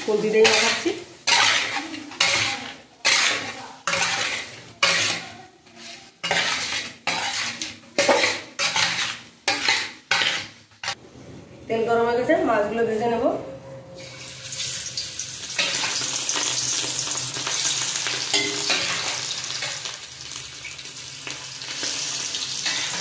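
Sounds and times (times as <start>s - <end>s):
metal spatula scraping metal bowl: 0.0s - 11.0s.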